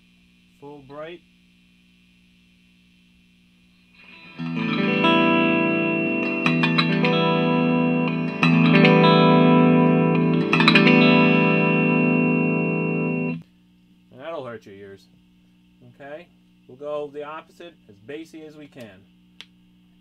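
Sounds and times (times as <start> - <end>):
electric guitar chords ringing: 4.0 - 13.4.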